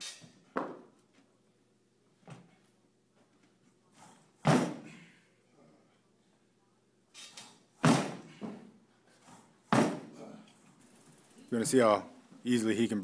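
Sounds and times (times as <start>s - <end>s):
feet thudding on platform: 7.8s - 8.7s, 9.7s - 10.1s.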